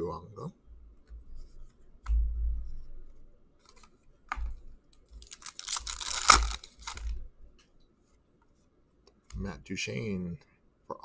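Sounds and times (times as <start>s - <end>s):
wrapper tearing open: 5.2s - 7.2s.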